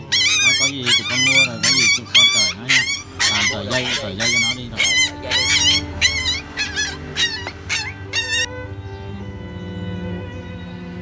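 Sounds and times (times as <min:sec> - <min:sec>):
puppies yelping: 0:00.0 - 0:08.6.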